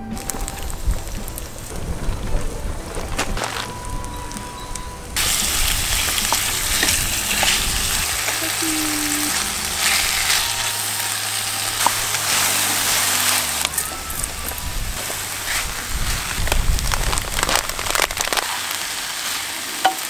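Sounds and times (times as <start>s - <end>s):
food sizzling in frying pan: 5.1s - 20.0s
wooden spatula stirring: 5.2s - 18.4s.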